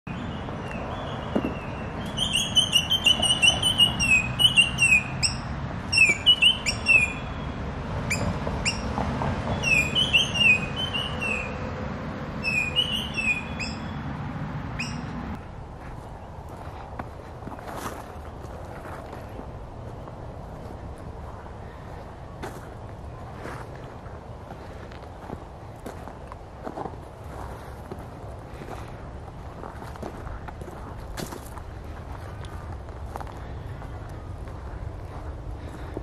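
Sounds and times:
birds chirping: 0:00.1 - 0:11.7, 0:12.3 - 0:16.8
steady low rumble: 0:10.6 - 0:36.0.

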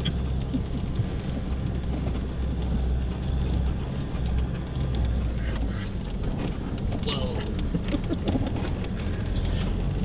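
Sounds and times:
engine and road drone: 0:00.0 - 0:10.0
knocks from bumpy ride: 0:05.0 - 0:09.1.

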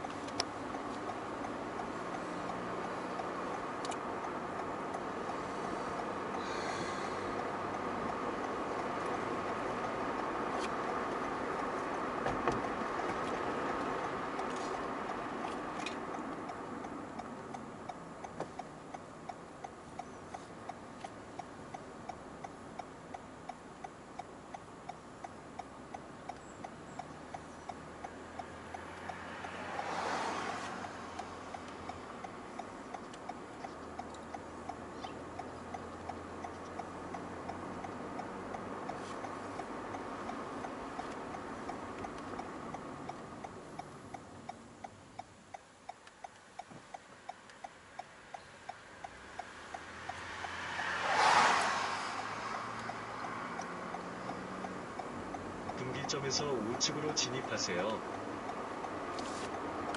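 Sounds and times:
car turn signal ticking: 0:00.0 - 0:59.9
road noise inside car: 0:00.0 - 0:59.9
car swishing past: 0:29.0 - 0:31.2, 0:49.9 - 0:54.7.

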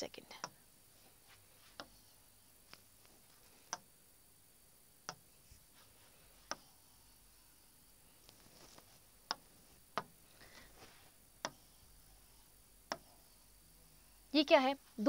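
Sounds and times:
pen tapping on writing board: 0:09.2 - 0:10.2, 0:12.9 - 0:13.1.

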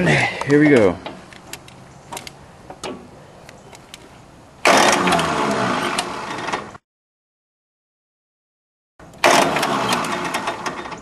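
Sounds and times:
electric starter cranking diesel engine: 0:04.6 - 0:06.8, 0:09.1 - 0:11.0.

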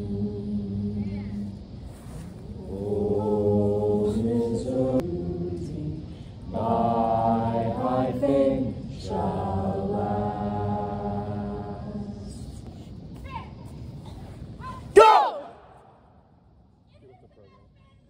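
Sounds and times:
group of voices singing: 0:00.0 - 0:01.7, 0:02.4 - 0:12.7.

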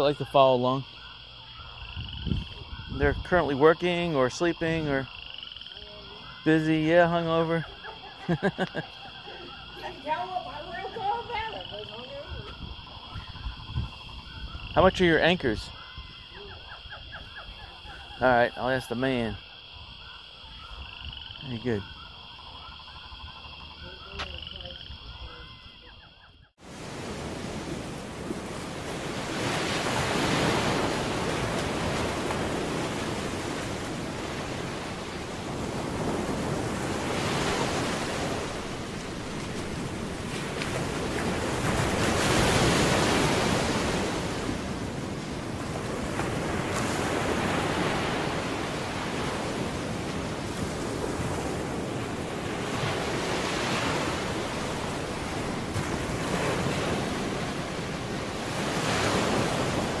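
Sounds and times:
waves breaking on a beach: 0:02.4 - 0:13.2, 0:26.6 - 1:00.0.

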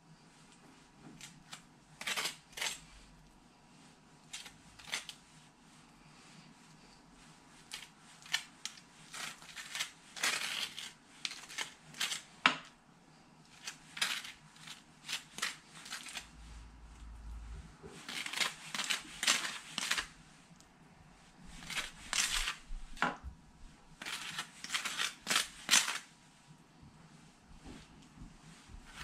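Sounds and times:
knife scraping across waffle: 0:01.1 - 0:03.0, 0:04.2 - 0:05.2, 0:07.6 - 0:12.4, 0:13.5 - 0:16.4, 0:17.9 - 0:20.2, 0:24.0 - 0:26.1.

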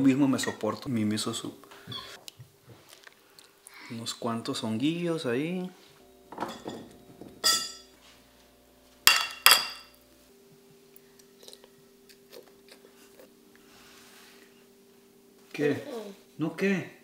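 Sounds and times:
metal spoon clinking ceramic bowl: 0:07.4 - 0:07.8, 0:09.1 - 0:09.9.

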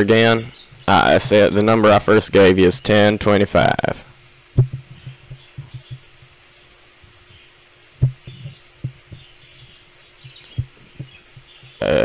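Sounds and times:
dull low thumps: 0:04.5 - 0:06.4, 0:08.0 - 0:09.6, 0:10.2 - 0:11.8.

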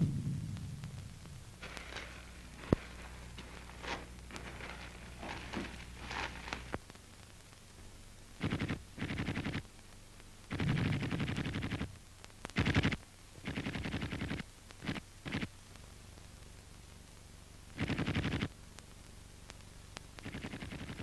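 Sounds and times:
sharp crack: 0:00.0 - 0:06.9
faint crackle: 0:00.0 - 0:21.0
steady low hum: 0:00.0 - 0:21.0.

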